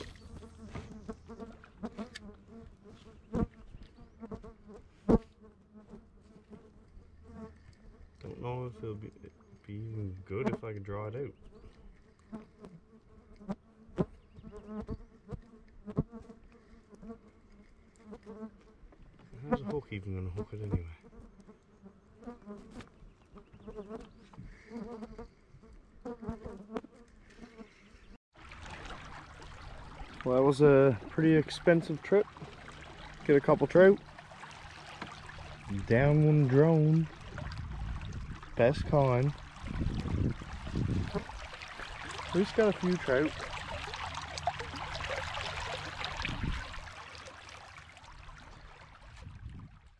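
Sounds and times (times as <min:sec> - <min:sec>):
water splashing along hull: 0:00.0 - 0:03.9, 0:28.3 - 0:49.9
flies buzzing: 0:00.0 - 0:10.7, 0:11.3 - 0:28.0, 0:29.3 - 0:47.8
heavy water slosh: 0:28.4 - 0:49.9.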